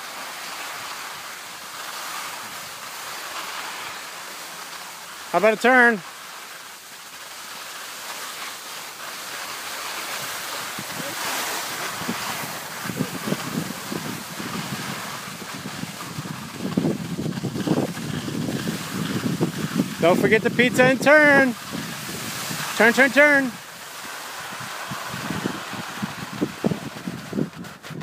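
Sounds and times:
skis hissing over snow: 0.0s - 28.0s
low wind buffeting: 10.1s - 22.9s, 23.6s - 28.0s
wind on microphone: 10.2s - 22.9s, 24.0s - 28.0s.

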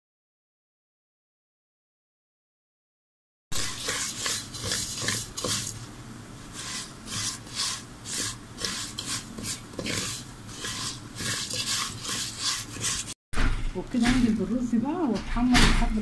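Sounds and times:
wooden spatula scraping rice in pot: 3.5s - 13.2s.

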